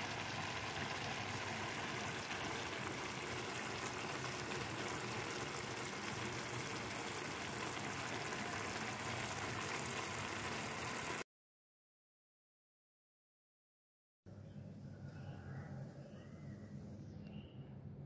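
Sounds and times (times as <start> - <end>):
stew simmering in a wok: 0.0 - 11.2.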